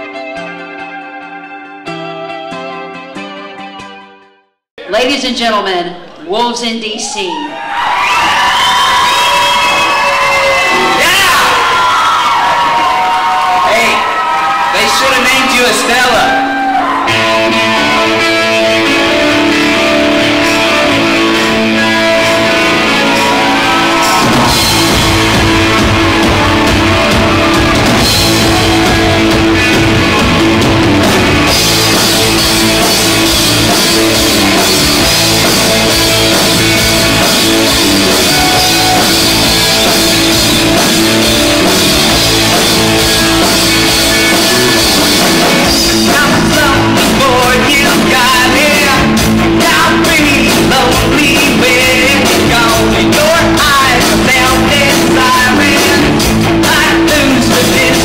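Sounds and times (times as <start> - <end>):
electric guitars: 0.0 - 4.2, 7.7 - 58.0
drum kit: 15.7 - 58.0
bass guitar: 15.8 - 58.0
man singing lead vocal: 45.7 - 58.0.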